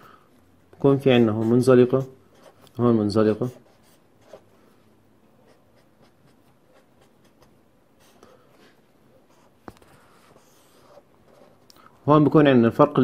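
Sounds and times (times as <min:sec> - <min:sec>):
marker pen scratching on paper: 0:00.6 - 0:02.8, 0:03.4 - 0:04.5, 0:05.4 - 0:08.7, 0:09.3 - 0:11.7.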